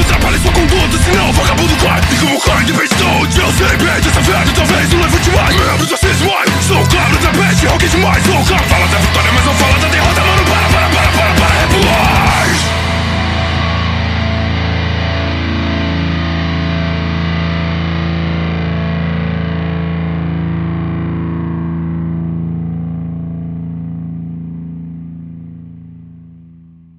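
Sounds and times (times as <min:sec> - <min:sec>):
distorted chord ringing: 0:00.0 - 0:24.3.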